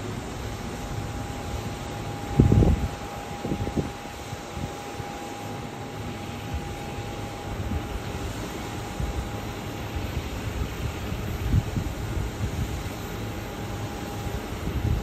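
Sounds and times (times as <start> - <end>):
thin jet whine: 0.0 - 15.0.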